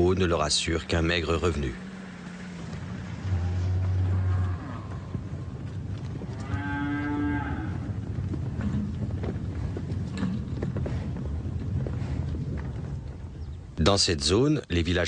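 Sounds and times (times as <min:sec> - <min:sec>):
steady low rumble: 0:00.0 - 0:06.6
cow mooing: 0:03.2 - 0:05.2, 0:06.4 - 0:07.9.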